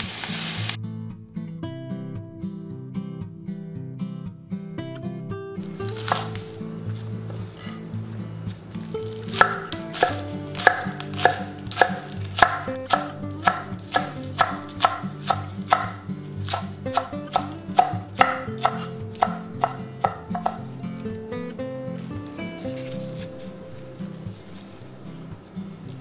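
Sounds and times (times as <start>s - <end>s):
knife chopping on cutting board: 5.7s - 6.6s, 9.0s - 20.7s.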